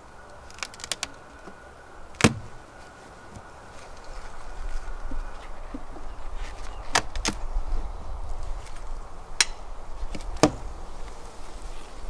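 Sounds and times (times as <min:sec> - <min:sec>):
honeybees humming: 0:00.0 - 0:12.0
wood cracking: 0:00.2 - 0:05.6, 0:06.5 - 0:07.5, 0:08.6 - 0:11.2.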